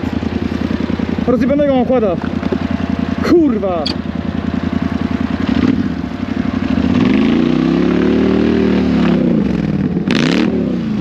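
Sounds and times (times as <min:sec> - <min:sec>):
atv engine idling and revving: 0:00.0 - 0:11.0.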